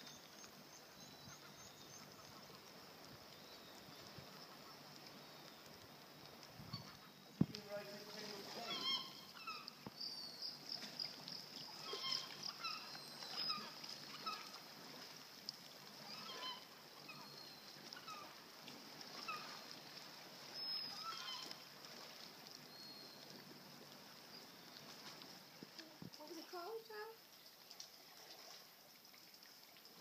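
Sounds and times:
birds honking: 8.4 - 9.8, 11.7 - 14.6, 16.0 - 17.4, 20.9 - 21.6.

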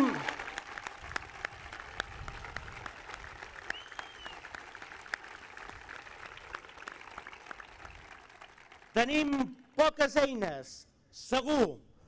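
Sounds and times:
crowd applauding: 0.0 - 9.5.

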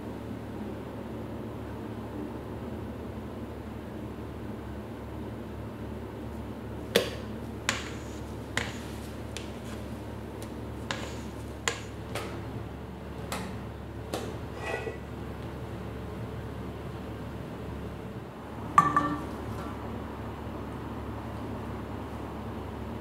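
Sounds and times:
steady low hum: 0.0 - 23.0
spatula tapping metal bowl: 7.7 - 8.8, 18.8 - 19.3.

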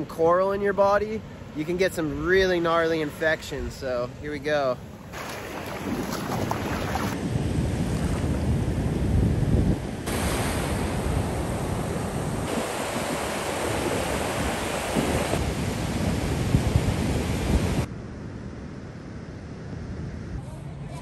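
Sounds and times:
ocean surf and breaking waves: 0.0 - 21.0
wind buffeting microphone: 5.0 - 17.9.

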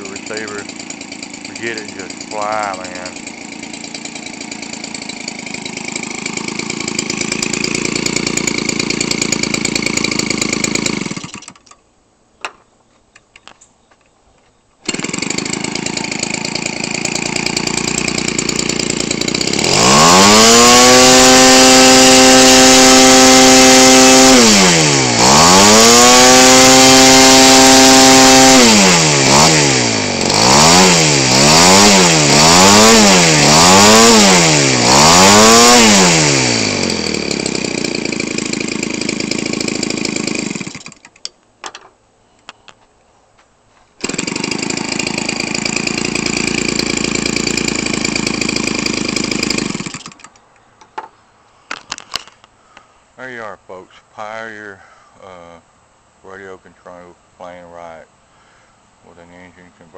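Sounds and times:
small two-stroke engine revving: 0.0 - 11.6, 14.8 - 41.1, 44.0 - 50.3.

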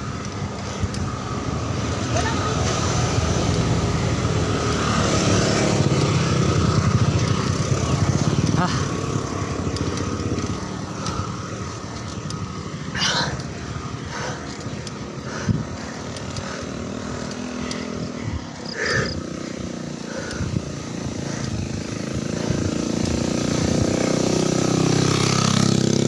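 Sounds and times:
small motorcycle engine running: 0.0 - 26.0
wind and road noise: 0.0 - 26.0.

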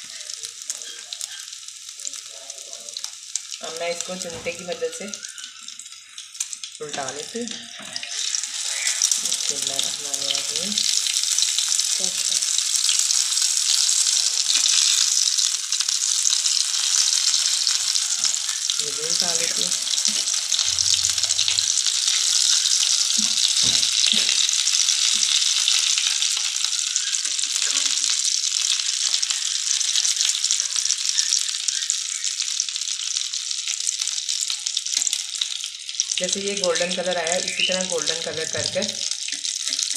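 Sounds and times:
patties sizzling in oil: 0.0 - 39.9.

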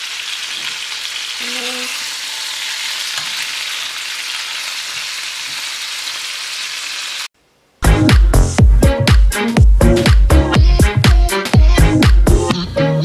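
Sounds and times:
steaks sizzling in a pan: 0.0 - 7.3
loud music with heavy beat: 7.8 - 12.7.

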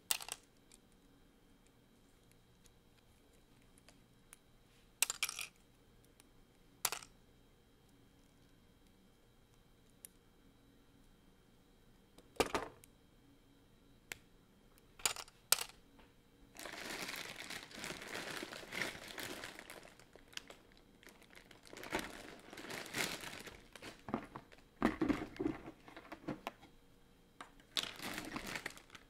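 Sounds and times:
plastic bricks clicking: 5.0 - 5.5, 6.8 - 7.1
crinkly rustling: 16.6 - 26.7, 27.6 - 29.0
plastic knocks: 24.1 - 26.6.

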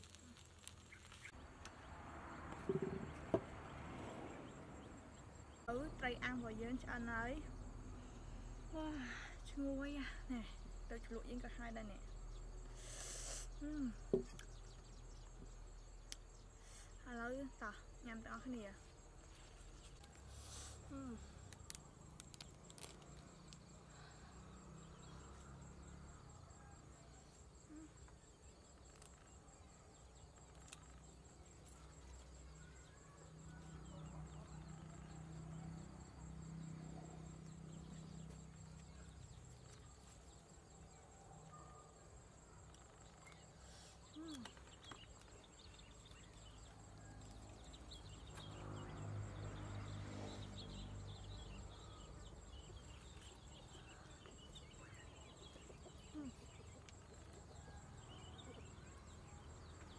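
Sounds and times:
insect trilling: 0.0 - 1.4
rustling leafy vegetables: 0.0 - 1.4.

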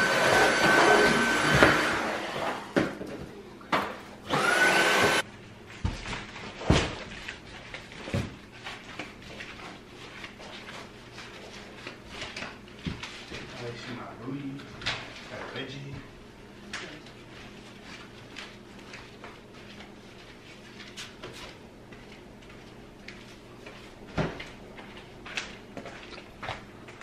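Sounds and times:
vacuum cleaner motor whine: 0.0 - 3.0, 4.2 - 5.3.

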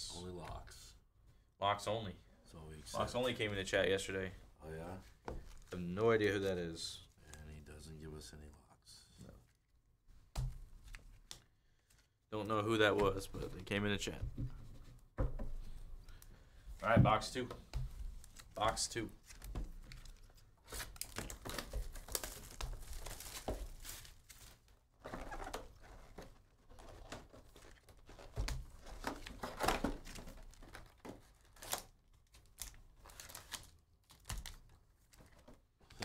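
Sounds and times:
plastic wrapping crinkling and tearing: 18.2 - 35.5.

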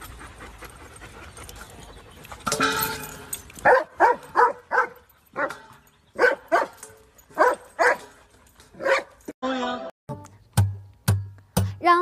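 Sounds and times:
dog barking: 3.6 - 5.6, 6.2 - 6.8, 7.4 - 8.1, 8.8 - 9.1.

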